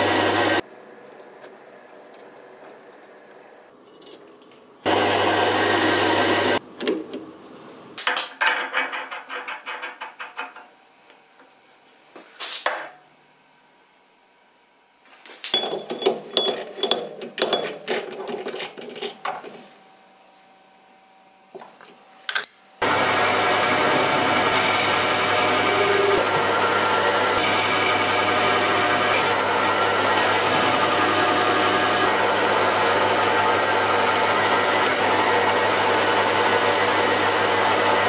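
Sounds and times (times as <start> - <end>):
machine running loudly: 22.8 - 38.0.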